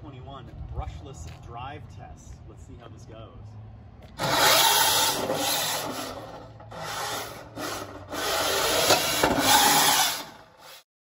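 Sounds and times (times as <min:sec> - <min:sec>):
robot motors and wheels rushing: 0:04.2 - 0:10.8.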